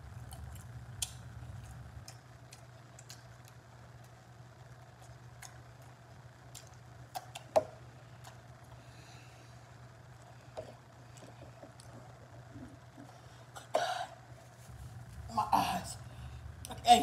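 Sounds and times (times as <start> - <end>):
low steady hum: 0.0 - 17.0
wet mouth clicks and smacks: 0.3 - 4.1, 6.5 - 7.5.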